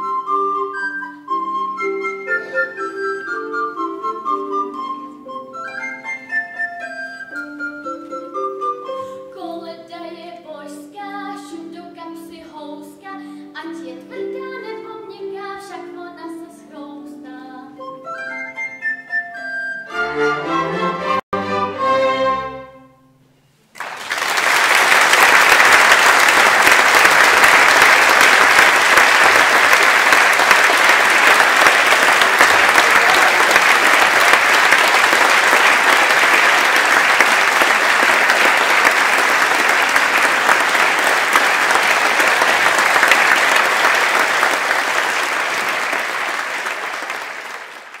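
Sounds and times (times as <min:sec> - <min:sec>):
audience applauding: 0:23.7 - 0:48.0.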